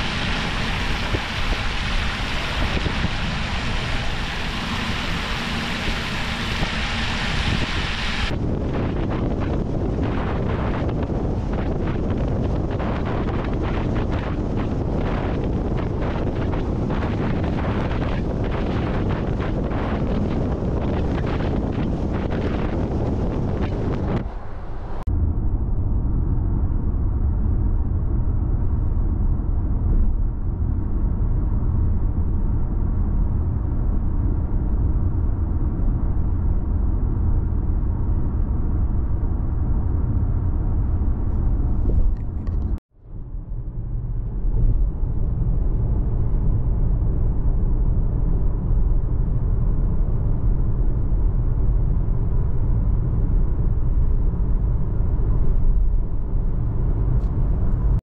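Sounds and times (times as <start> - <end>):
car engine and road noise: 0.0 - 16.5, 17.1 - 26.6, 50.0 - 58.0.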